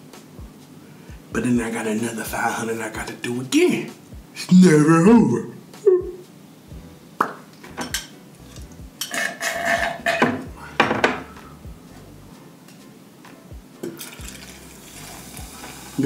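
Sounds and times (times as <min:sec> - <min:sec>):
glass and can clinking: 0:07.2 - 0:11.2, 0:13.8 - 0:14.6.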